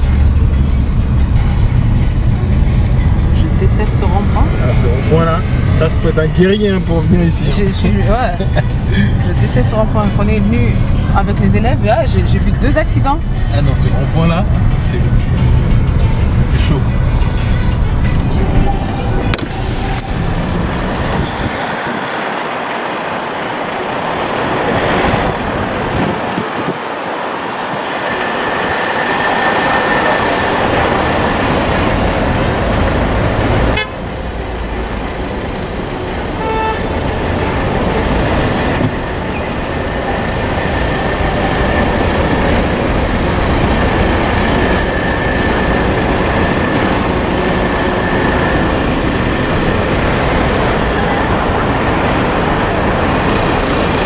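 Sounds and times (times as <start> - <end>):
traffic engines and tyre noise: 0.0 - 54.0
car horns: 31.5 - 42.4.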